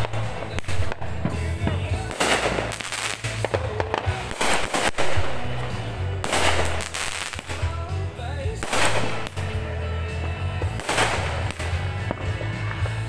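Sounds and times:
fireworks crackling: 0.0 - 13.0
sharp firework bang: 6.2 - 7.7, 8.6 - 9.6, 10.8 - 12.3.

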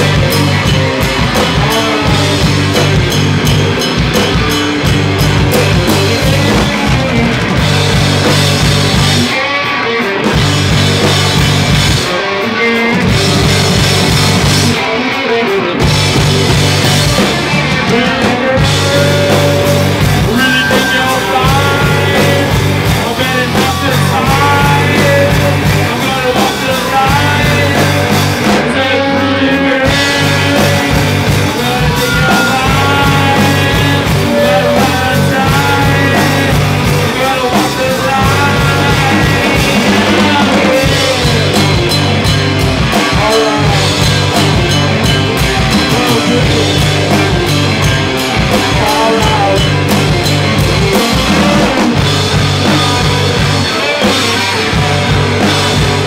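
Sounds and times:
drum kit with cymbals: 0.0 - 56.0
electric guitar: 0.0 - 56.0.

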